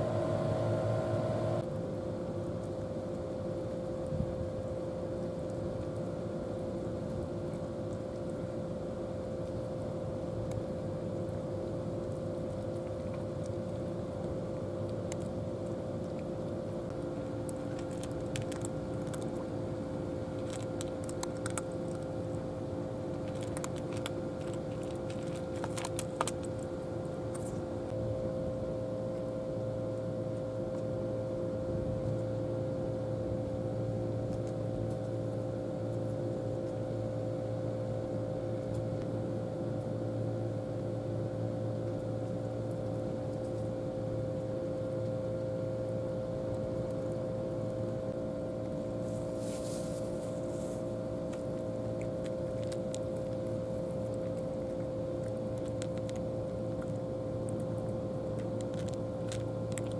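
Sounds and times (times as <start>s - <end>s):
steady mechanical hum: 0.0s - 59.9s
cat crunching dry kibble: 2.6s - 27.8s, 34.0s - 35.2s, 46.3s - 59.9s.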